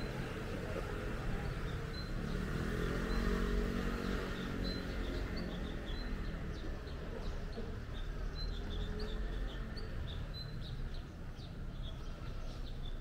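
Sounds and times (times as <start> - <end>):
vehicle passing: 0.0 - 7.2
small birds chirping: 0.0 - 13.0
street traffic: 0.0 - 13.0.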